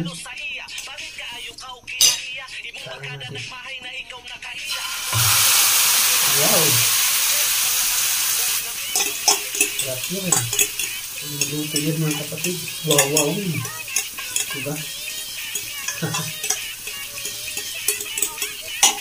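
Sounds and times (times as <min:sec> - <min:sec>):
oil sizzling in frying pan: 0:04.7 - 0:19.0
fork scraping ceramic plate: 0:08.9 - 0:19.0.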